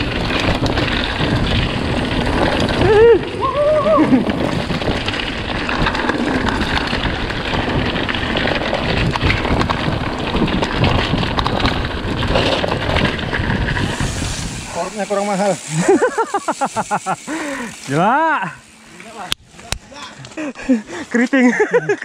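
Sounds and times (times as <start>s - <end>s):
wind noise on microphone: 0.0s - 15.1s
bike rattling: 0.0s - 22.0s
bike tyres crunching over stones: 0.0s - 22.0s.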